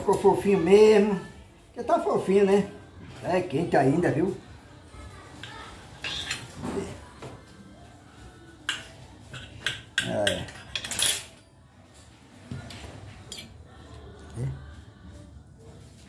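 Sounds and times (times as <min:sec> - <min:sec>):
knife scraping a plate: 0:06.0 - 0:06.7.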